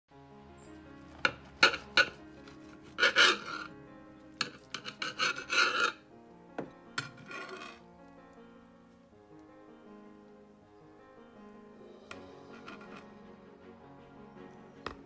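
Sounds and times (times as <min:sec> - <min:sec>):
soft piano music: 0:00.1 - 0:15.0
knife sawing through pizza crust: 0:01.2 - 0:03.7, 0:04.4 - 0:06.0, 0:07.0 - 0:07.8, 0:12.5 - 0:13.0.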